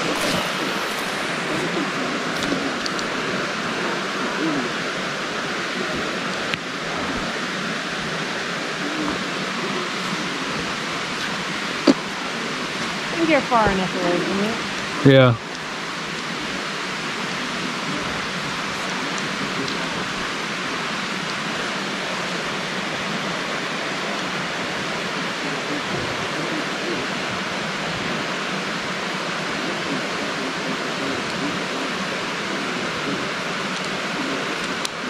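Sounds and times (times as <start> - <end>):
waterfall rushing: 0.0 - 35.0.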